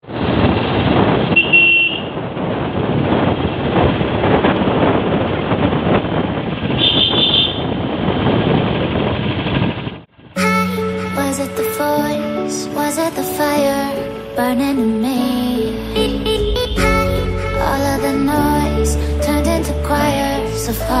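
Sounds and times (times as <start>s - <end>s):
motorcycle engine and road noise: 0.0s - 10.4s
horn tooting: 1.3s - 2.2s.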